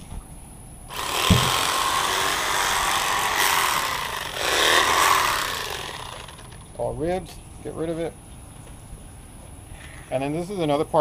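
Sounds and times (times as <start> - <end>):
electric fillet knife cutting fish: 0.9 - 6.5.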